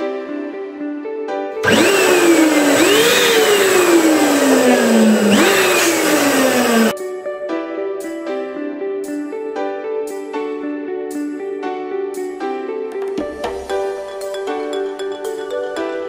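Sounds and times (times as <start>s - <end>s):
soft background music: 0.0s - 16.0s
electric balloon pump whine: 1.6s - 6.9s.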